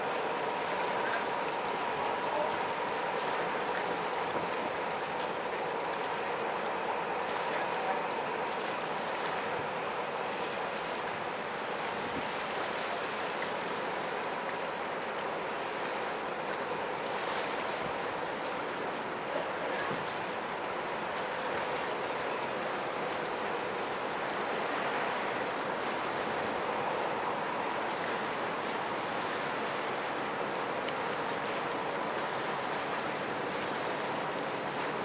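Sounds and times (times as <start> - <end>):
faint ship engine hum: 0.0 - 35.0
water wash: 0.0 - 35.0.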